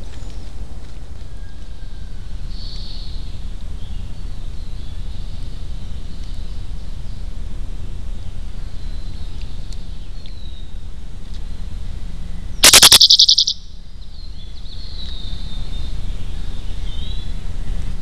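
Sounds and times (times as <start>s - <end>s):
wind rumble on microphone: 0.0s - 12.6s, 14.0s - 18.0s
faint high bird calls: 12.6s - 13.6s.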